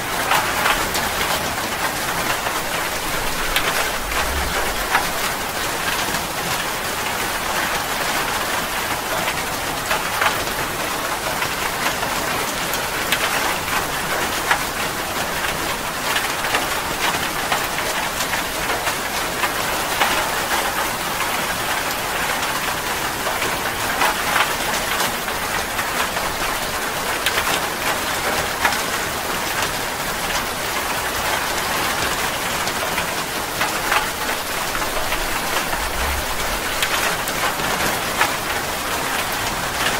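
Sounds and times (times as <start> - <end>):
heavy rain hiss: 0.0 - 9.6, 31.4 - 39.9.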